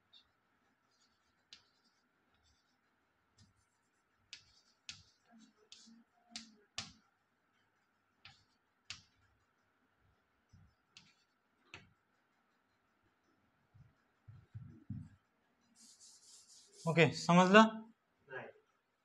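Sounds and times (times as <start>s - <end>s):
chalk tapping on a blackboard: 0.9s - 2.8s, 3.4s - 7.0s, 8.2s - 9.4s, 10.6s - 12.0s, 15.8s - 16.9s.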